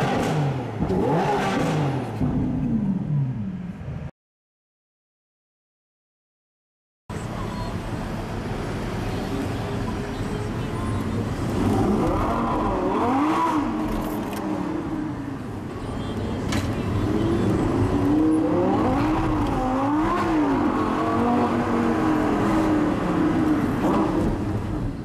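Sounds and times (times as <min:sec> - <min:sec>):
car engine revving: 0:00.0 - 0:03.4, 0:11.4 - 0:15.2, 0:17.0 - 0:24.8
low road rumble: 0:00.0 - 0:04.1, 0:07.1 - 0:25.0.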